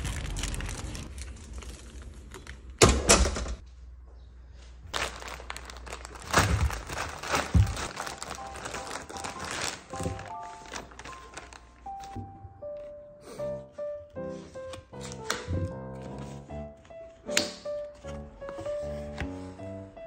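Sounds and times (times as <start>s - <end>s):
plastic bag rustling and crinkling: 0.0s - 2.8s, 4.9s - 12.2s
door shutting: 2.8s - 3.6s
soft music: 6.9s - 20.0s.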